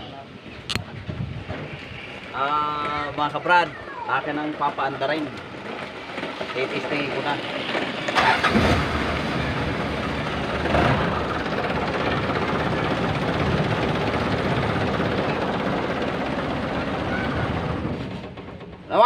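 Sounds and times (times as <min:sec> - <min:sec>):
engine cranking and running: 0:04.1 - 0:19.0.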